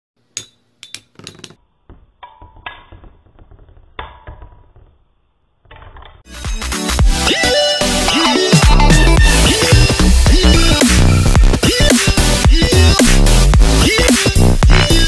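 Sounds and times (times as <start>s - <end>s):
sharp clinks and knocks: 0.3s - 1.6s
electronic music: 6.3s - 15.0s.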